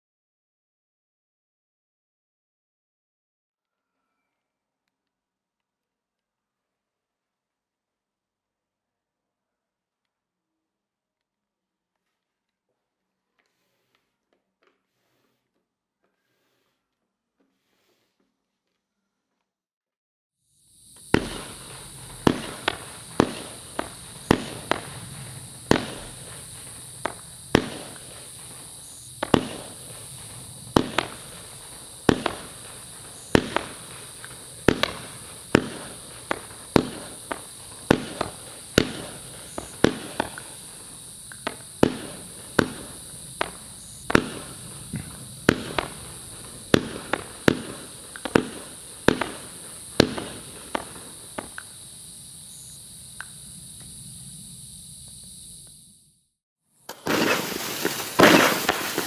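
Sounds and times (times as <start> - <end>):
firework shots thumping: 21.0 - 51.9, 56.9 - 59.0.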